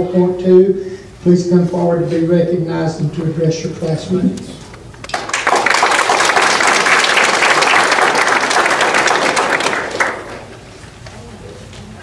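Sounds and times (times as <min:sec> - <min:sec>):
audience applauding: 0:05.0 - 0:10.6.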